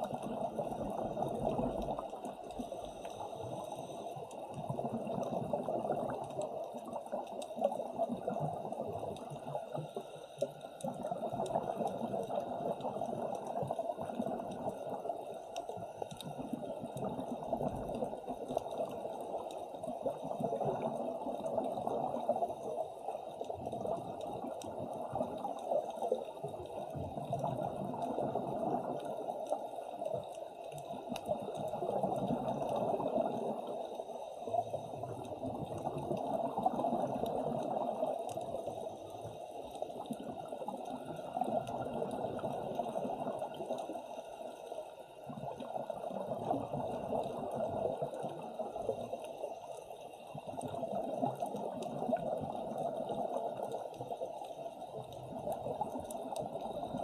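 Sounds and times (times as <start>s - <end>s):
muffled underwater bubbling: 0.0s - 57.0s.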